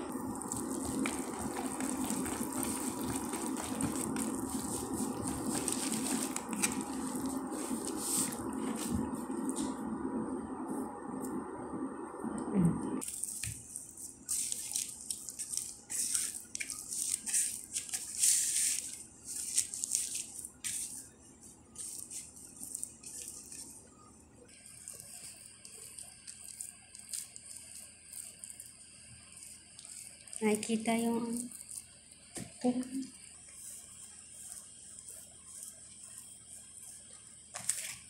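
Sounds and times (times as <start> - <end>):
dough squelching and tearing: 0.1 - 9.8, 13.0 - 23.9, 24.5 - 32.6, 33.4 - 38.0.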